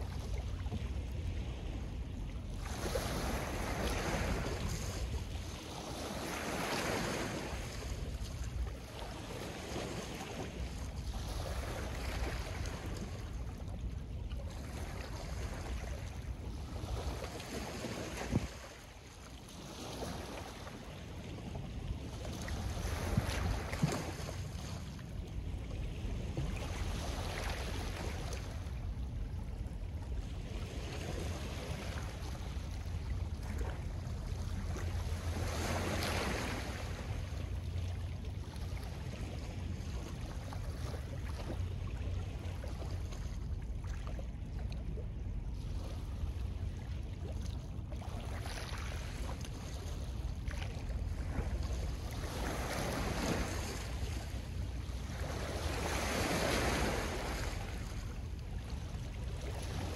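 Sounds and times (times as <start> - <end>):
waves breaking on stony shore: 0.0 - 13.4, 14.5 - 21.4, 22.2 - 25.2, 30.5 - 37.5, 48.0 - 58.2
wind rumble on microphone: 0.0 - 59.9.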